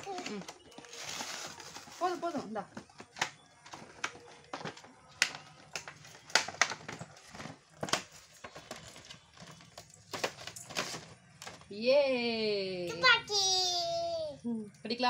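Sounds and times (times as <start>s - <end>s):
plastic and cardboard packaging crackling: 0.0s - 11.7s.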